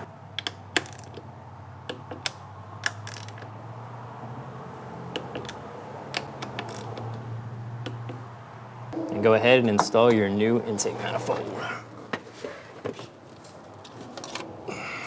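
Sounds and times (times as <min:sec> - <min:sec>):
socket wrench ratcheting: 0:00.4 - 0:01.3, 0:01.9 - 0:03.5, 0:05.2 - 0:07.2.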